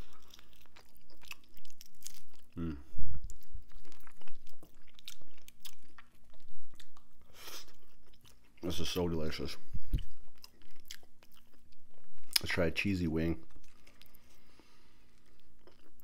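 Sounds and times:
person chewing with crunches: 0.0 - 12.6, 13.4 - 16.0
person humming mm: 2.6 - 2.9.

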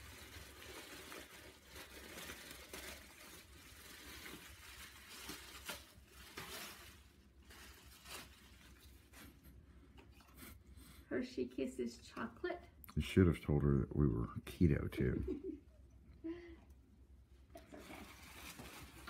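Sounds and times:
plastic and paper crinkling: 0.0 - 10.5, 17.6 - 19.0.

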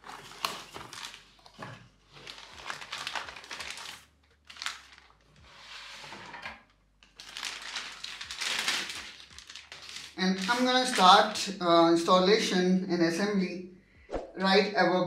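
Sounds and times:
plastic bag crinkling: 0.0 - 5.4, 7.0 - 11.5
cardboard rustling: 0.0 - 6.2.

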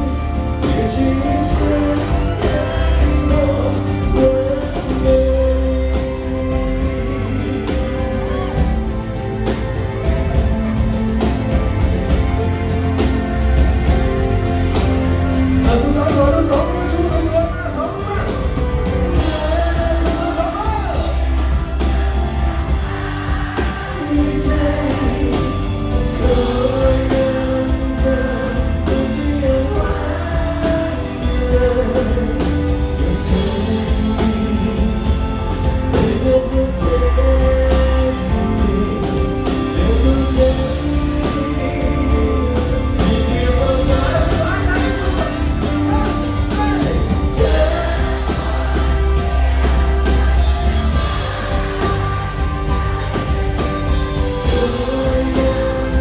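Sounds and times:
man singing into microphone: 0.0 - 8.1, 19.0 - 21.8, 22.8 - 49.8, 54.2 - 56.0
drums: 0.0 - 56.0
heavy bass: 0.0 - 56.0
keyboard: 0.0 - 56.0.

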